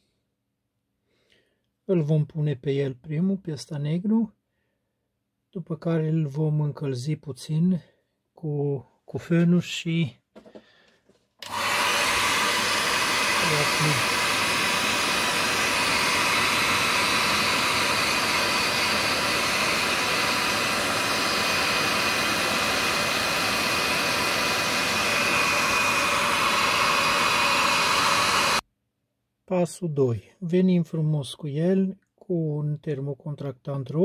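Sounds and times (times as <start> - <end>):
heat gun blowing air: 11.4 - 28.6.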